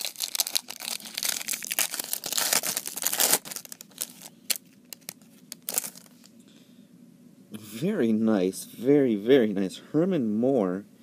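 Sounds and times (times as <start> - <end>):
wrapper crinkling: 0.0 - 6.3.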